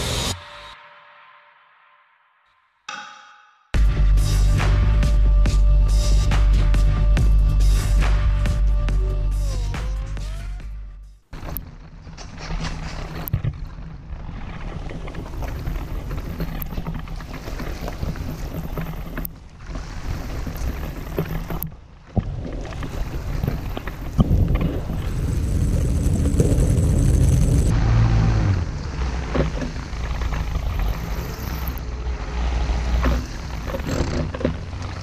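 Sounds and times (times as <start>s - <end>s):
outboard motor humming: 13.4s - 35.0s.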